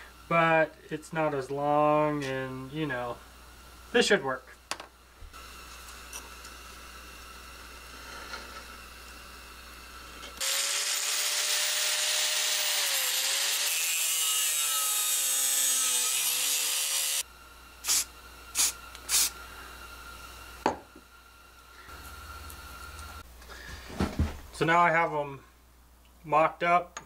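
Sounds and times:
angle grinder cutting steel: 0:10.4 - 0:17.2, 0:17.8 - 0:19.3.

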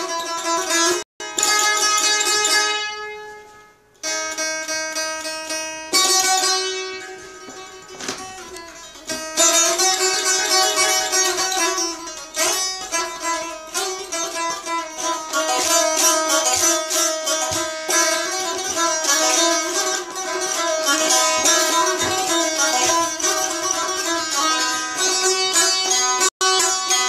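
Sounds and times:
saz strumming a melody: 0:00.0 - 0:27.0.

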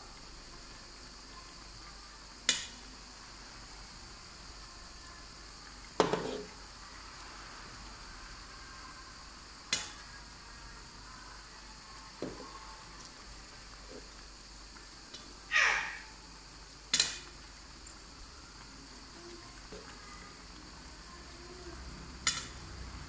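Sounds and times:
pan sizzling: 0:00.0 - 0:23.0
metal spoon knocking on pan: 0:06.0 - 0:06.4.

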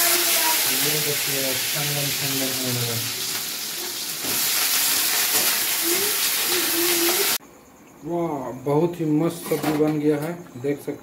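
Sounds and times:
vegetables sizzling in hot oil: 0:00.0 - 0:07.4.

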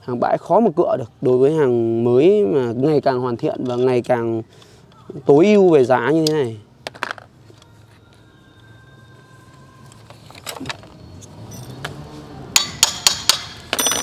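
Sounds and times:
clicks and clinks of engine parts: 0:09.8 - 0:12.0.

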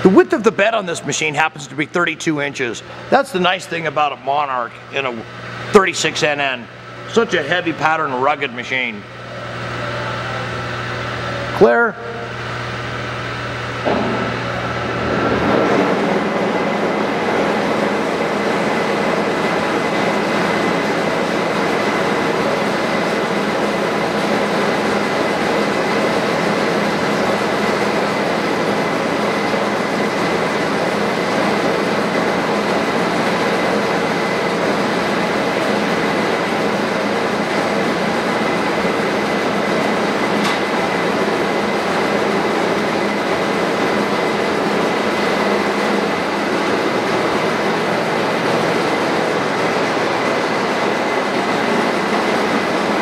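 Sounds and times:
high whine: 0:00.0 - 0:23.9
lathe running: 0:00.0 - 0:53.0.

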